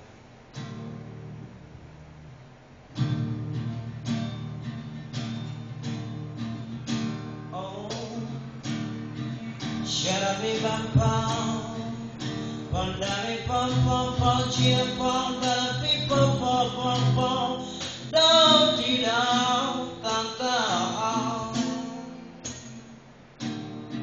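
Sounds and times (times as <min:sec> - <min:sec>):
acoustic guitar strumming: 0:00.0 - 0:24.0
man singing: 0:07.5 - 0:08.7, 0:09.5 - 0:22.3.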